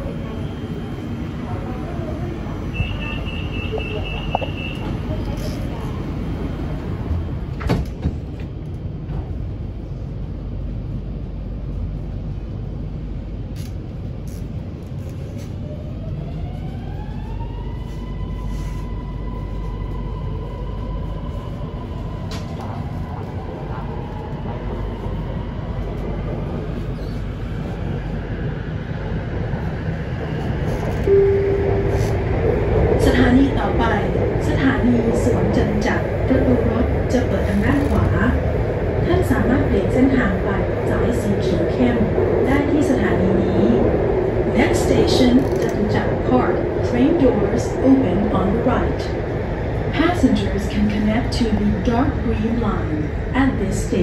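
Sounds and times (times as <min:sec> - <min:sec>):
low rumble of wheels on rails: 0:00.0 - 0:54.0
brief tone: 0:02.7 - 0:04.9, 0:31.0 - 0:32.2.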